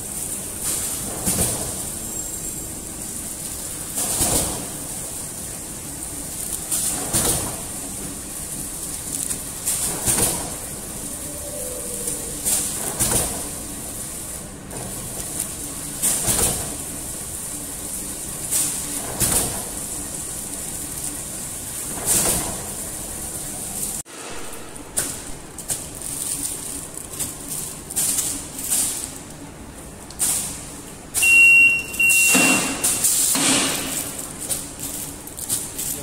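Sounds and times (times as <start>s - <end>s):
machine clatter sealing and cutting: 0.0s - 11.1s, 12.2s - 31.2s, 32.3s - 36.0s
wrapping machine high whine: 0.0s - 22.0s.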